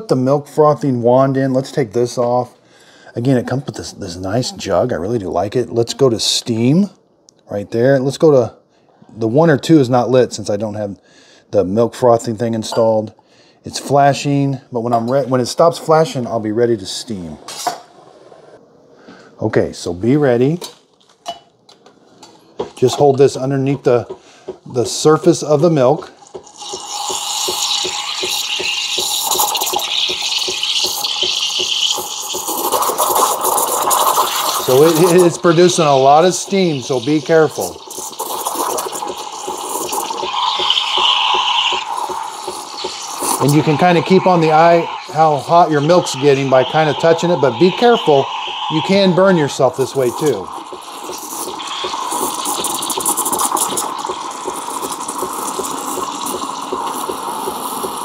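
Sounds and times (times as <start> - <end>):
steam wand hissing in milk: 26.6 - 58.0
regular pulsing: 34.3 - 58.0.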